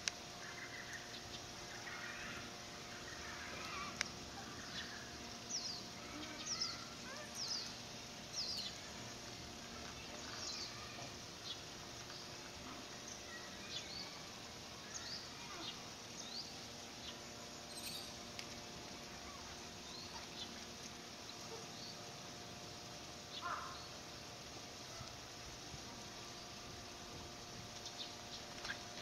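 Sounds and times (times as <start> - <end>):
small birds chirping: 0.0 - 22.2
faint steady hum: 0.0 - 29.0.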